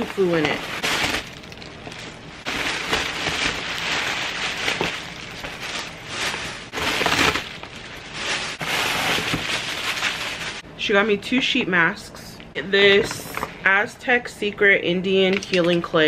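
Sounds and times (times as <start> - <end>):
tissue paper rustling: 0.0 - 10.6.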